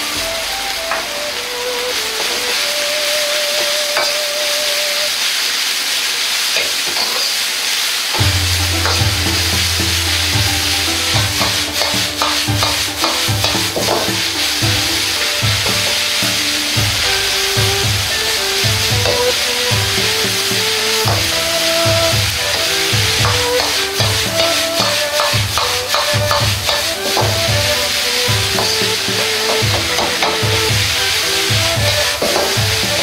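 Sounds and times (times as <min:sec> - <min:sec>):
vegetables sizzling in a wok: 0:00.0 - 0:33.0
metal ladle scraping a wok: 0:08.2 - 0:33.0.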